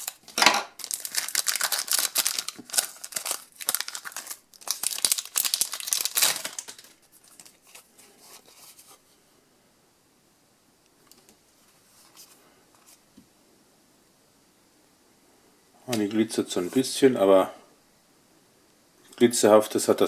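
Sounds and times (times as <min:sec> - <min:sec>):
cards and packaging rustling: 0:00.0 - 0:09.0.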